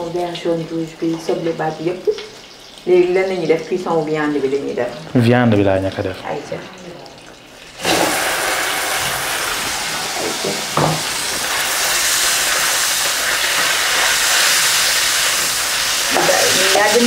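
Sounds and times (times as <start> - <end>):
meat sizzling in a pan: 0.0 - 5.2, 5.8 - 17.0
utensil knocking on pan: 10.3 - 11.3.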